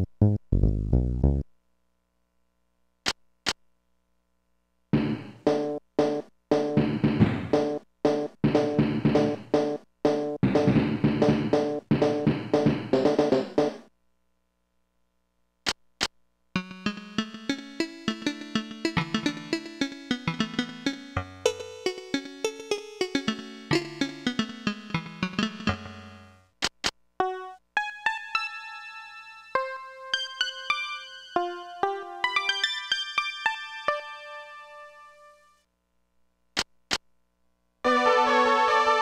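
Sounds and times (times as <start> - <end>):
keyboard melody with bass notes: 0.0 - 1.5, 5.0 - 13.8, 16.6 - 26.5, 27.2 - 35.4, 37.9 - 39.0
keyboard drum pattern: 5.0 - 13.9, 16.6 - 26.2
keyboard playing higher single notes: 16.6 - 26.4.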